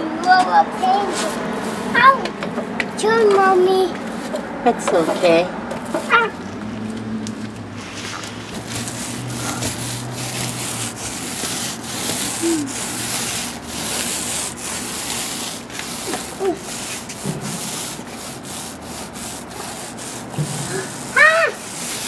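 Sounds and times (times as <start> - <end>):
paint roller swishing: 7.8 - 22.0.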